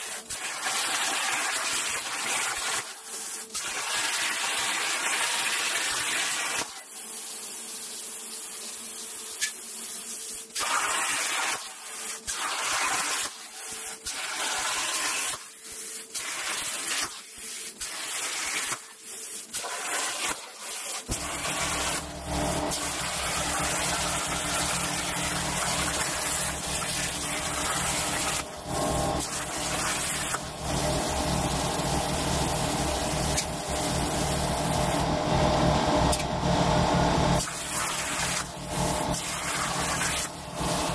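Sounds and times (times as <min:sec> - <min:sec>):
plasma torch hissing: 0:00.0 - 0:02.9, 0:10.3 - 0:35.1, 0:37.4 - 0:40.9
steady low hum: 0:21.2 - 0:37.4.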